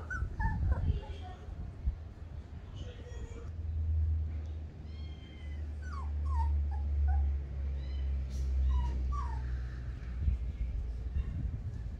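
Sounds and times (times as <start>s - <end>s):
puppy whimpering: 0.0s - 1.1s, 5.2s - 9.5s
steady low rumble: 9.6s - 11.9s.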